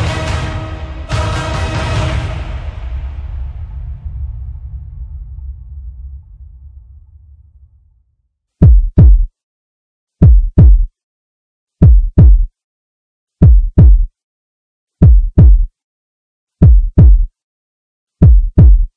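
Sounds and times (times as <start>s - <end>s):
heartbeat double thumps: 8.6s - 9.3s, 10.2s - 10.9s, 11.8s - 12.5s, 13.4s - 14.1s, 15.0s - 15.7s, 16.6s - 17.3s, 18.2s - 18.9s.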